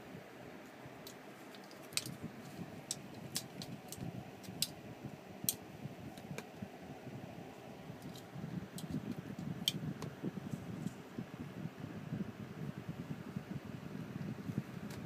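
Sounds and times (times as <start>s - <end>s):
soft rustling: 0.6s - 4.4s.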